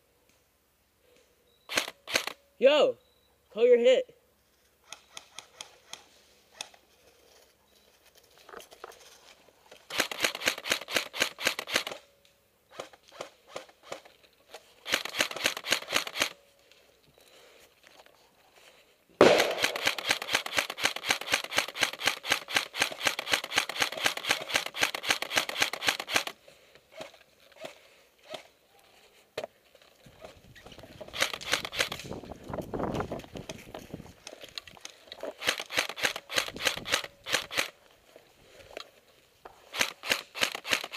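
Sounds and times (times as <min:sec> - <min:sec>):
airsoft rifle rapid clicking shots: 0:01.7 - 0:02.4, 0:09.9 - 0:12.0, 0:14.8 - 0:16.4, 0:19.2 - 0:26.4, 0:31.1 - 0:32.0, 0:35.4 - 0:37.8, 0:39.7 - 0:40.9
single rifle clicks: 0:19.2 - 0:26.4.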